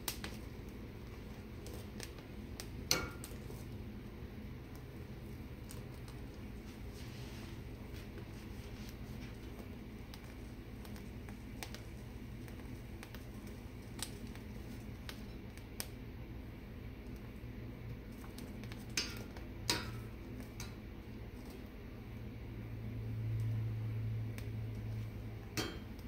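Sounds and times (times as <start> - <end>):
gas burner flames humming: 0.0 - 26.0
tongs clicking on metal grate: 2.0 - 3.4, 18.8 - 20.8, 25.6 - 26.0.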